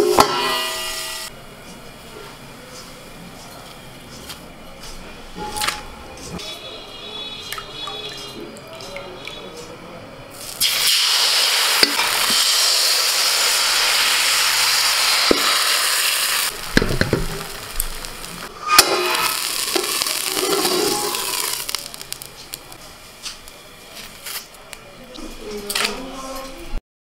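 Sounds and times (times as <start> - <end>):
batter sizzling in hot pan: 10.3 - 24.5.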